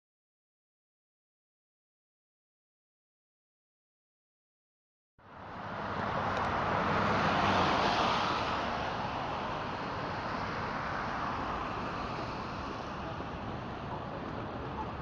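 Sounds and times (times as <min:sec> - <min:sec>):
traffic noise: 0:05.2 - 0:15.0.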